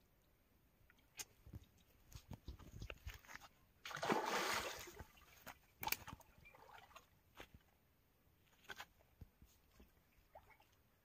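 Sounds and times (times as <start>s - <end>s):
fish splashing in water: 3.9s - 5.1s.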